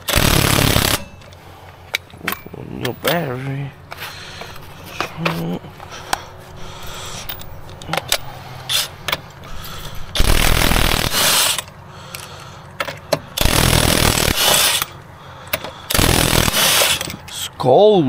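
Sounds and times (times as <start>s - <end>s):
power tool bursts: 0.0s - 1.3s, 9.7s - 11.7s, 13.4s - 14.9s, 15.9s - 17.2s.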